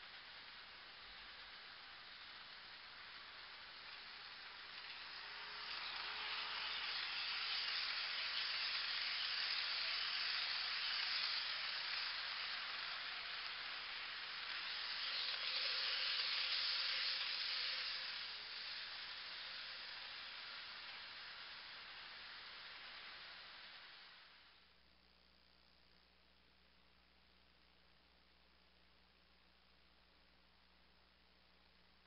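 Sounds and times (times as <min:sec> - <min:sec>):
model train wheels hissing on rails: 0:00.0 - 0:24.8.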